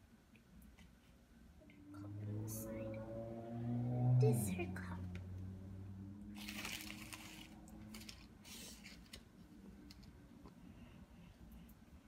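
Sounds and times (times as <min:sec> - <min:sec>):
low steady hum: 0:00.0 - 0:12.0
plastic and foil rustles: 0:06.4 - 0:09.3.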